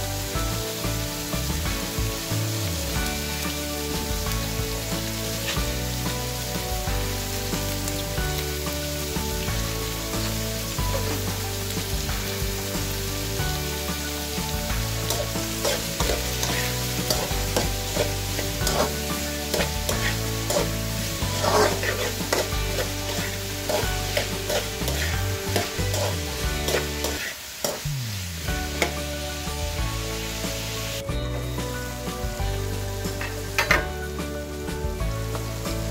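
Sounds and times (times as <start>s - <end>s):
onions sizzling in hot oil: 0.0s - 35.9s
metal spatula scraping a pan: 14.9s - 27.9s.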